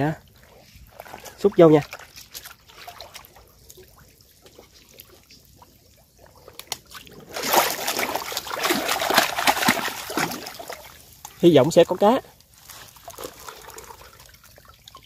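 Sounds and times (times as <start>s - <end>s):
water sloshing and splashing: 0.0s - 15.0s.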